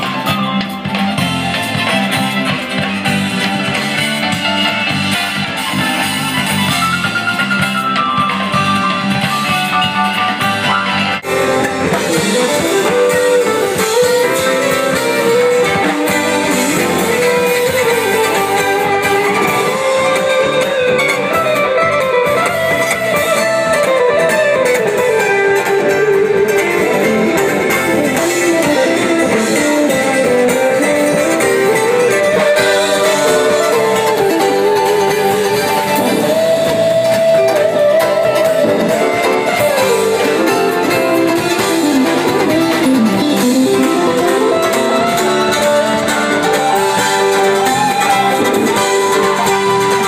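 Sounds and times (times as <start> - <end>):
electric guitar lead line: 0.0 - 50.0
live rock band playing: 0.0 - 50.0.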